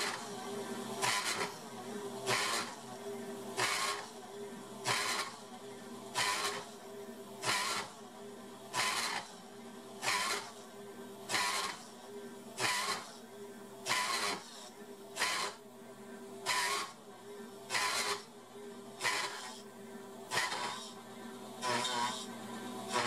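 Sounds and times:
spindle motor humming: 20.3 - 23.0.

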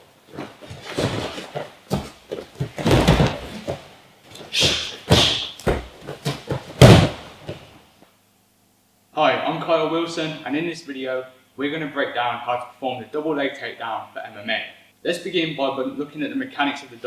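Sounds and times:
feet stepping on mats: 0.3 - 7.8
body slammed onto mat: 0.4 - 3.8, 4.6 - 7.7
gloved strikes thudding: 4.6 - 7.7.

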